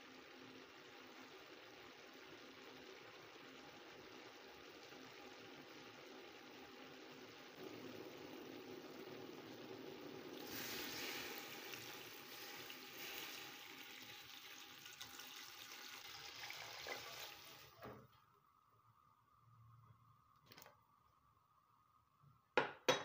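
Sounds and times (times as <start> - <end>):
water pouring into a steel pot: 7.5 - 17.8.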